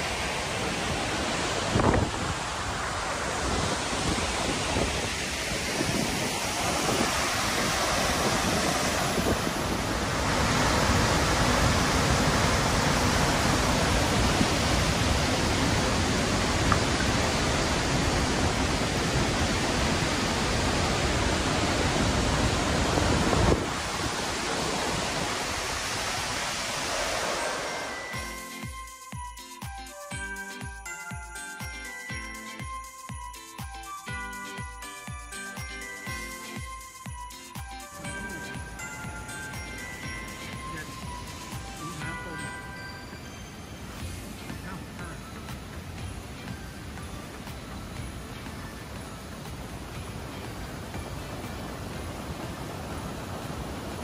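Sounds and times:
wind on microphone: 0:00.0 - 0:27.4
waterfall rushing: 0:00.0 - 0:32.7, 0:33.3 - 0:54.0.

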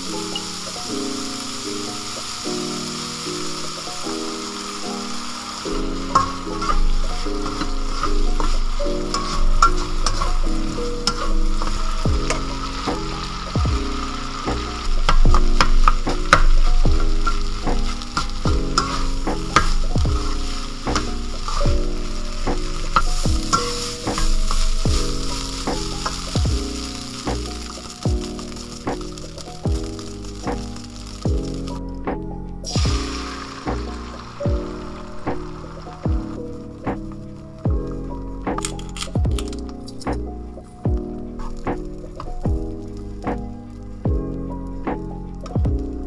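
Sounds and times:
food sizzling in a wok: 0:00.0 - 0:32.0, 0:32.6 - 0:40.0, 0:41.0 - 0:46.0
lo-fi background music: 0:00.0 - 0:46.0
spatula clicking and scraping pan: 0:06.0 - 0:13.4, 0:14.6 - 0:26.4.

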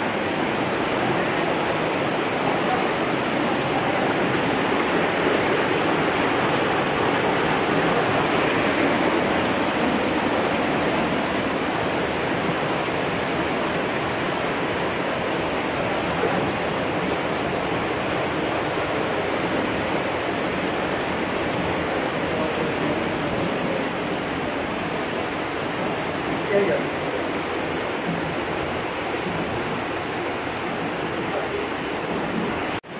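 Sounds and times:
waterfall roaring: 0:00.0 - 0:32.9.

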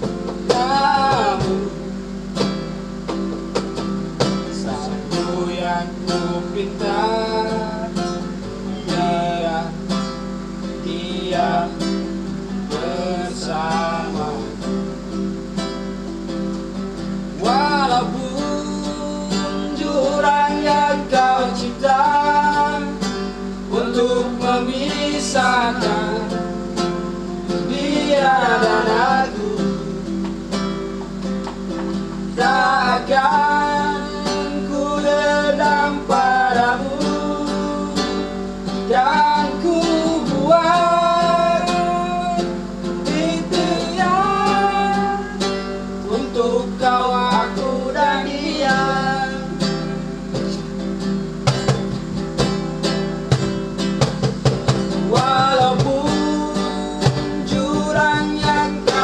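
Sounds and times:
acoustic guitar strumming: 0:00.0 - 0:59.0
men singing: 0:00.4 - 0:02.1, 0:04.2 - 0:10.1, 0:10.7 - 0:14.8, 0:17.4 - 0:30.4, 0:32.2 - 0:50.2, 0:54.9 - 0:59.0.

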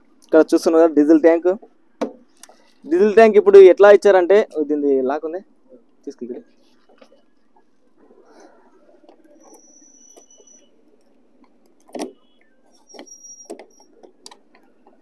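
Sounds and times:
plastic cap squeaking: 0:09.2 - 0:10.8, 0:11.8 - 0:15.0.

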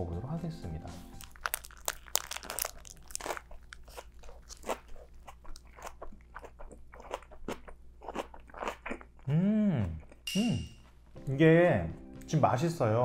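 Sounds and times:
biting and chewing crunches: 0:01.1 - 0:09.3.

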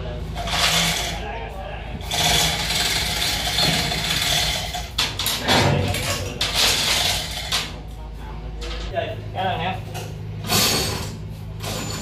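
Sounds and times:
hoist chains clanking and rattling: 0:00.3 - 0:01.3, 0:02.0 - 0:07.8, 0:10.0 - 0:12.0.

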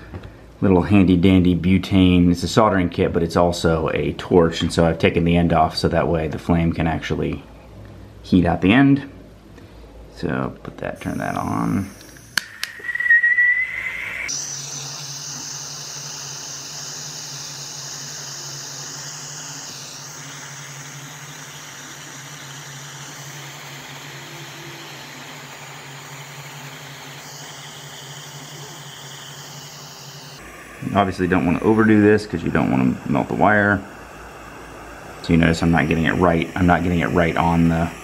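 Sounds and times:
hiss of burning gas: 0:11.0 - 0:38.0
lighter clicks: 0:11.9 - 0:13.0
short rising whistle: 0:11.9 - 0:35.2.

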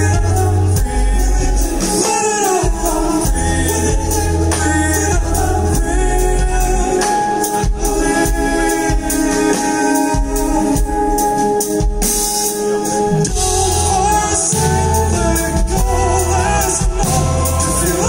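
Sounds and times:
deep bass notes: 0:00.0 - 0:02.0, 0:02.6 - 0:09.3, 0:13.0 - 0:18.0
man singing: 0:00.0 - 0:12.0, 0:13.0 - 0:18.0
live band playing: 0:00.0 - 0:18.0.

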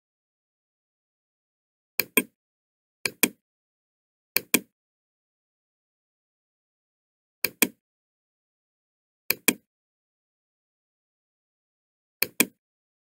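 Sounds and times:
computer mouse clicking: 0:02.0 - 0:02.4, 0:03.1 - 0:03.4, 0:04.4 - 0:04.7, 0:07.4 - 0:07.8, 0:09.3 - 0:09.6, 0:12.2 - 0:12.6.

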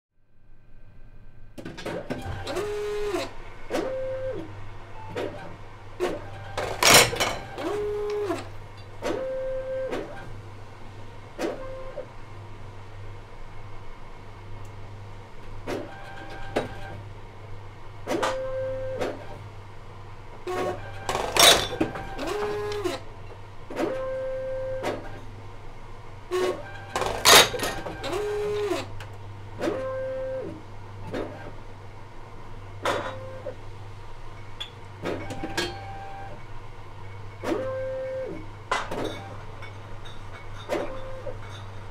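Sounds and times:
low machine hum: 0:00.2 - 0:41.9
machine motors whirring: 0:01.8 - 0:10.3, 0:18.1 - 0:19.4, 0:20.5 - 0:23.1, 0:26.3 - 0:29.0, 0:29.6 - 0:31.6, 0:37.4 - 0:38.5.

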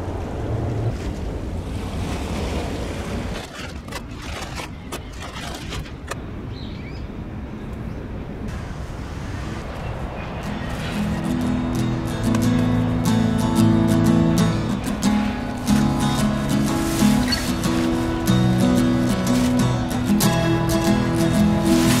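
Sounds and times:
wind on microphone: 0:05.1 - 0:13.8.

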